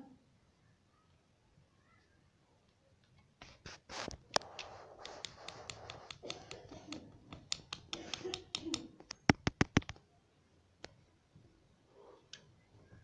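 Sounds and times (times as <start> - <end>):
beak tapping on mirror: 4.4 - 9.9.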